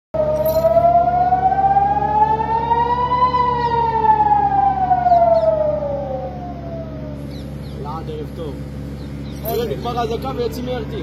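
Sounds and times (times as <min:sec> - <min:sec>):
siren wailing: 0:00.2 - 0:08.0
faint second siren: 0:00.2 - 0:08.1
low rumble: 0:00.2 - 0:11.0.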